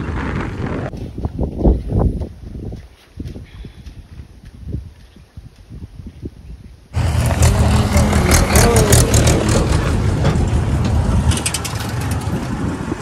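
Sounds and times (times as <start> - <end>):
tractor engine running: 7.0 - 13.0
clattering rattles: 9.2 - 12.7.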